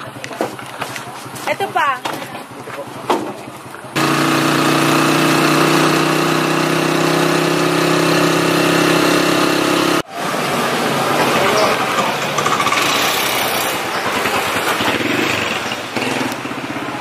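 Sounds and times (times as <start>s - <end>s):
motorcycle engine running: 0.0s - 10.1s.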